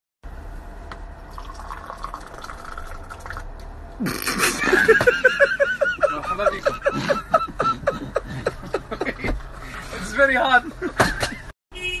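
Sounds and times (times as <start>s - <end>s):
tea pouring into a glass: 1.3s - 3.4s
man snickering: 4.0s - 9.9s.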